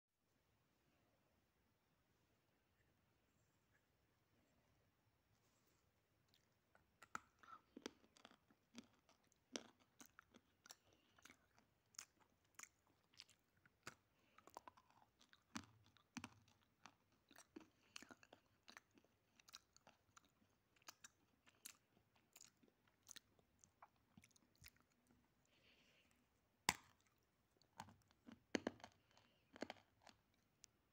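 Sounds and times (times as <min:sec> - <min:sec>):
crunchy chewing of dry clay: 0:06.2 - 0:30.9.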